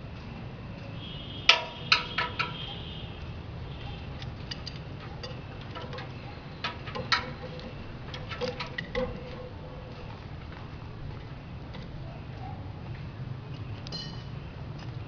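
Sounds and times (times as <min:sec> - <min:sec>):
metallic clicks and knocks: 0:01.5 - 0:02.8, 0:03.9 - 0:10.1.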